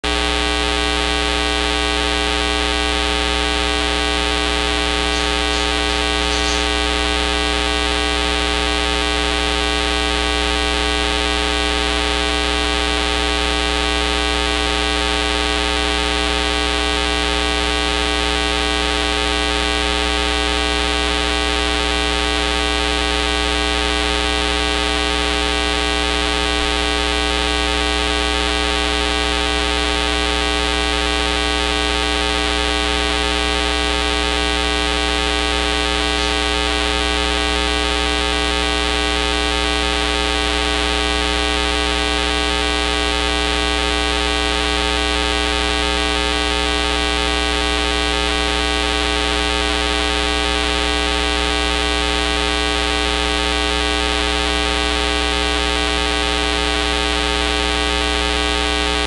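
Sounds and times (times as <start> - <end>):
loud buzzing hum: 0.0 - 59.0.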